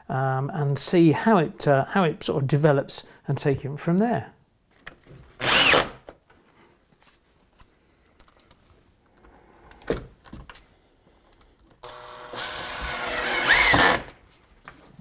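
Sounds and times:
drill driving screw into wood: 5.4s - 6.1s, 11.8s - 14.2s.

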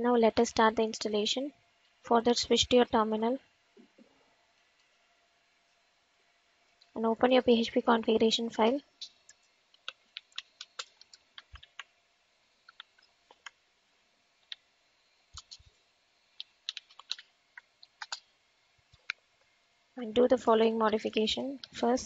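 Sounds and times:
keyboard keys clicking: 9.3s - 11.9s, 15.3s - 15.7s, 16.4s - 18.3s.

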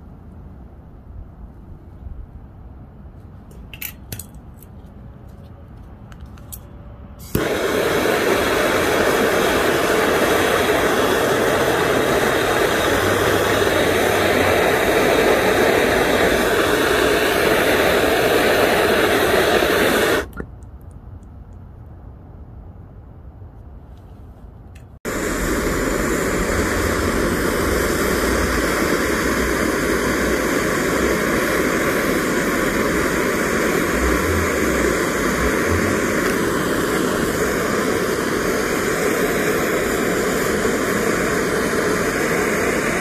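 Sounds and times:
gas torch flame hissing: 7.2s - 20.4s, 25.0s - 43.0s.

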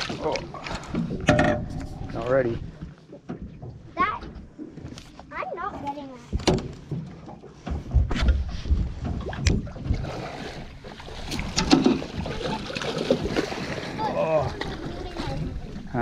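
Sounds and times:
knocks and thumps on boat deck: 3.2s - 5.0s, 6.2s - 10.1s, 11.3s - 13.5s.

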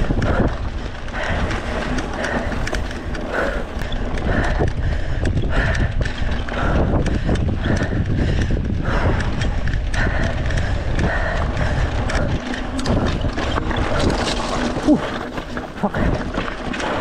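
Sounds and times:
bike clicks and rattles: 0.0s - 17.0s
wind buffeting microphone: 0.0s - 17.0s
tyre rumble on dirt: 10.8s - 17.0s.

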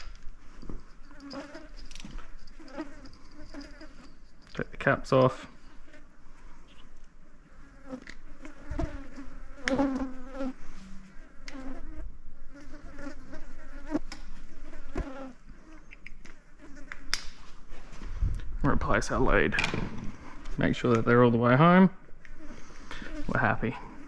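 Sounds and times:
flies buzzing: 0.0s - 4.4s, 5.6s - 17.4s, 22.2s - 24.0s.

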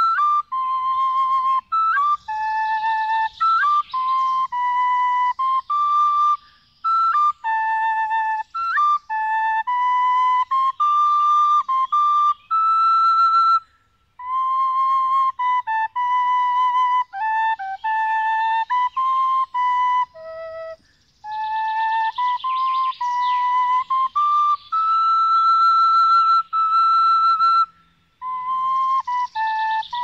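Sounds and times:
flute slow melody: 0.0s - 30.0s.

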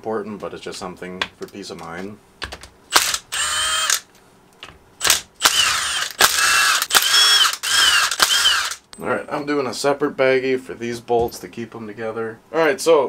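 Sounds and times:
impact driver whining and hammering: 5.0s - 8.9s.

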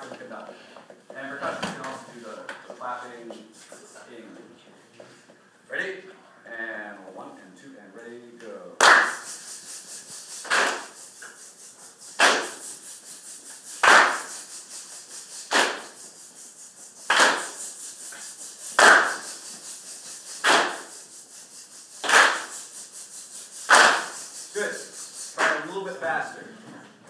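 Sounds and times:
group clapping a rhythm: 8.7s - 26.0s
softer quicker clapping: 8.8s - 9.4s, 10.4s - 11.0s, 12.2s - 12.6s, 13.8s - 14.4s, 15.5s - 15.9s, 17.1s - 17.6s, 18.8s - 19.3s, 20.4s - 20.9s, 22.0s - 22.6s, 23.7s - 24.2s.

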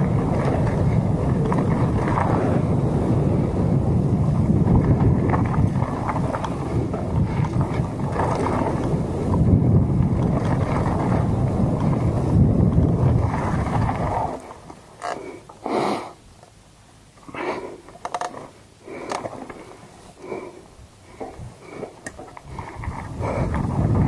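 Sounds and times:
wind buffeting microphone: 0.0s - 14.9s, 19.2s - 24.0s
tyres and brakes scraping on gravel: 0.0s - 15.4s.

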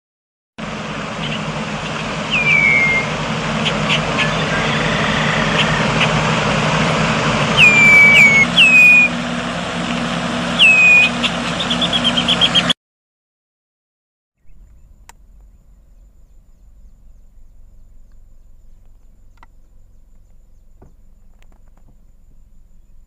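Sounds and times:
bird whistles: 2.3s - 6.2s, 7.5s - 9.2s, 10.6s - 12.7s
steady low rumble: 14.4s - 23.0s
bird ticks and clicks: 18.0s - 22.0s.

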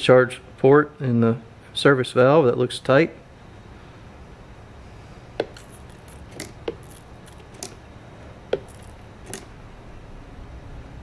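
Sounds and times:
spray bottle squirting: 5.4s - 7.8s, 8.6s - 9.5s.

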